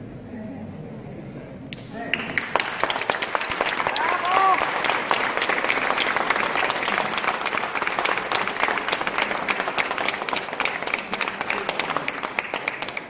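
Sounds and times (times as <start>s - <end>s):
congregation applauding: 2.1s - 13.0s.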